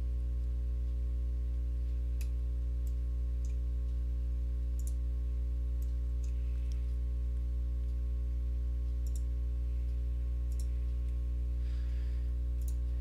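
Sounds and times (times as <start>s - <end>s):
low hum: 0.0s - 13.0s
computer mouse clicking: 4.8s - 5.0s, 8.9s - 9.3s, 10.5s - 11.2s, 12.6s - 12.9s.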